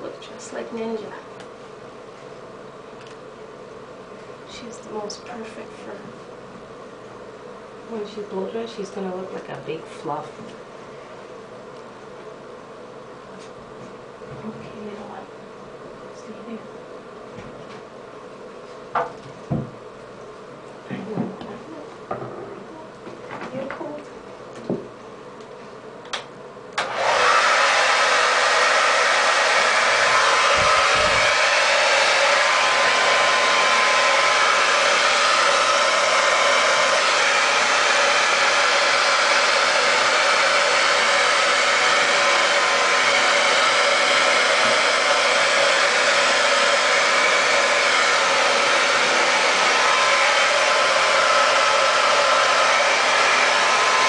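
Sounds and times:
hair dryer blowing: 0.0 - 2.4, 26.8 - 54.0.

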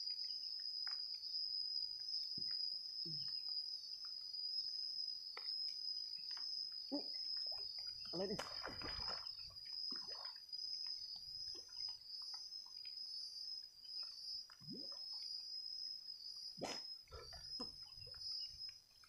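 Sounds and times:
water splashing and sloshing: 7.4 - 12.9.

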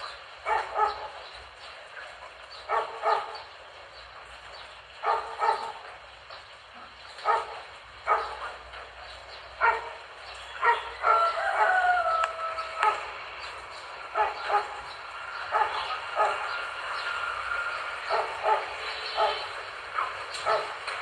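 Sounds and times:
dog long drawn-out call: 0.0 - 1.3, 1.9 - 3.5, 5.0 - 6.0, 9.6 - 13.3, 14.0 - 21.0
heavy rain hiss: 0.0 - 21.0
dog barking: 0.4 - 1.3, 2.6 - 3.5, 5.0 - 6.0, 6.8 - 8.8, 9.6 - 13.1, 14.1 - 16.6, 18.0 - 21.0.

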